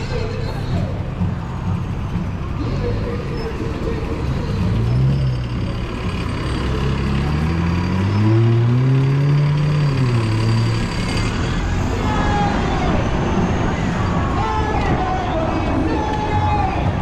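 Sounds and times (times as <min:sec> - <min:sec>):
vehicle engine revving: 0:00.0 - 0:14.3.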